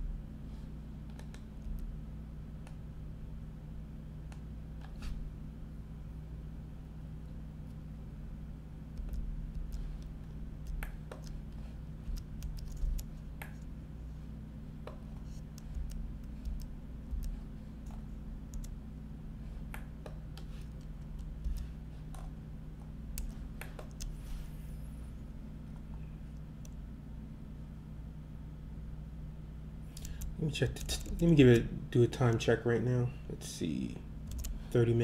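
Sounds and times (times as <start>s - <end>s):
steady low hum: 0.0s - 35.0s
keyboard and mouse clicks: 1.1s - 1.9s, 9.0s - 13.7s, 14.9s - 18.8s, 23.1s - 24.2s, 34.3s - 34.6s.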